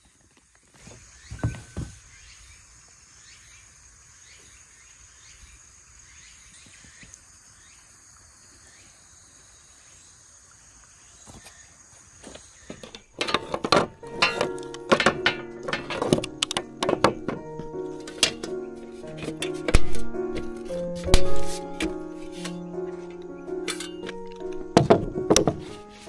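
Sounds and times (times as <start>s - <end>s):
soft knocks: 12.8s - 23.0s, 24.1s - 25.9s.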